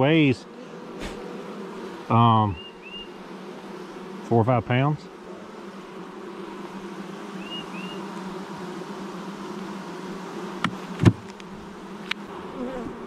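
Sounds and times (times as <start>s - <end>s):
honeybees humming: 0.0s - 13.0s
sharp knocks: 10.6s - 11.3s.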